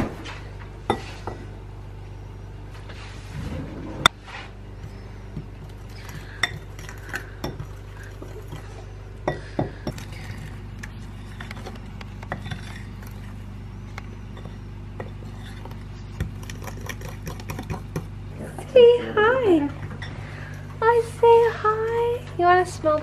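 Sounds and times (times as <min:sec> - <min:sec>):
fork stirring in glass bowl: 0:05.6 - 0:13.5, 0:14.3 - 0:18.1.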